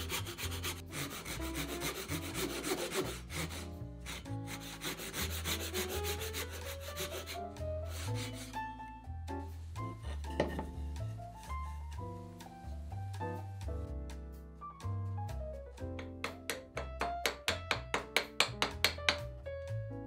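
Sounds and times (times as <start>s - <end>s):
hand saw cutting wood: 0.0s - 8.5s
soft piano and bass music: 0.0s - 20.0s.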